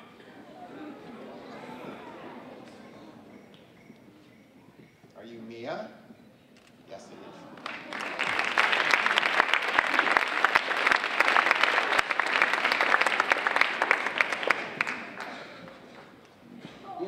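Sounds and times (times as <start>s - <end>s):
audience applauding: 7.5s - 16.1s.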